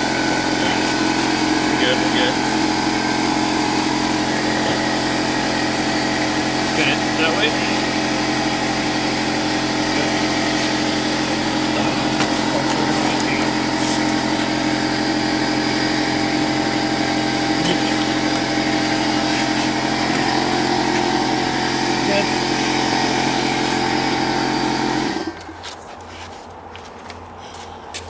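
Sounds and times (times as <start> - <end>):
small engine humming: 0.0 - 26.1.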